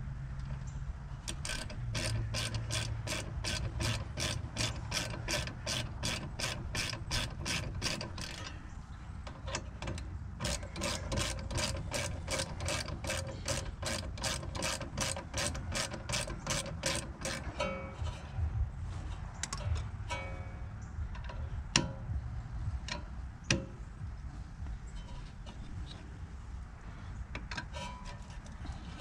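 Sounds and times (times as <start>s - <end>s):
ratchet wrench clicking: 1.2s - 8.6s, 9.2s - 18.3s.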